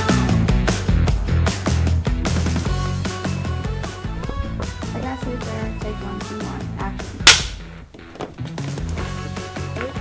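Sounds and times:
background music: 0.0 - 10.0
clapperboard snapping shut: 7.2 - 7.6.

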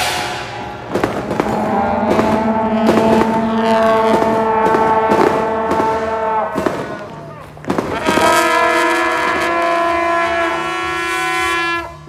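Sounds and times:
percussive beats: 0.0 - 8.4
brass band holding a chord: 0.0 - 12.0.

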